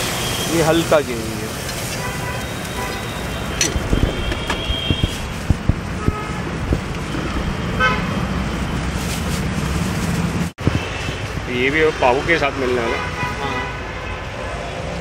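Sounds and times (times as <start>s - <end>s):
traffic rumble: 0.0s - 15.0s
vehicle horns tooting: 1.8s - 6.6s, 12.6s - 14.3s.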